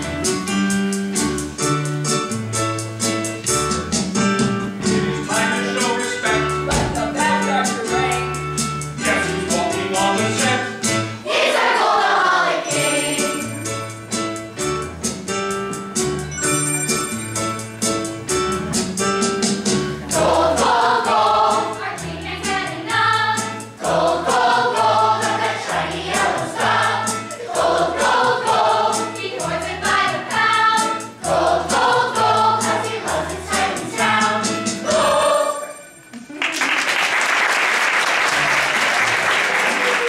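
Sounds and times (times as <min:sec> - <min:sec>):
group singing with accompaniment: 0:04.8 - 0:07.7, 0:09.0 - 0:13.7, 0:20.0 - 0:35.8
audience applause: 0:36.3 - 0:40.0.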